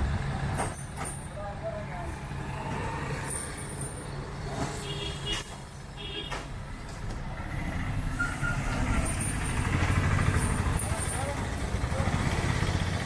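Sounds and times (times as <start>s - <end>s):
autorickshaw driving up: 6.5s - 13.0s
idling motor vehicles rumble: 6.5s - 13.0s.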